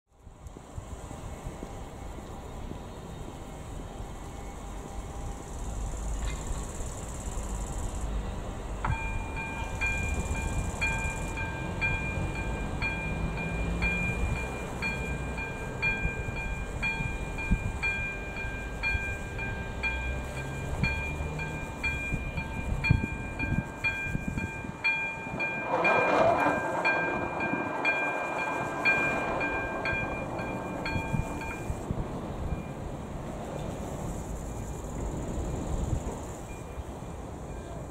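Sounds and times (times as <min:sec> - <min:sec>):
level crossing warning bell: 0:08.8 - 0:32.9.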